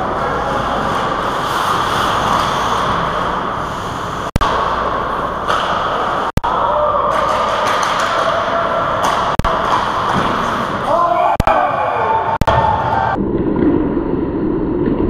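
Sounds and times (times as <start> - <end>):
skates scraping on ice: 0.0 - 6.3, 7.1 - 11.0.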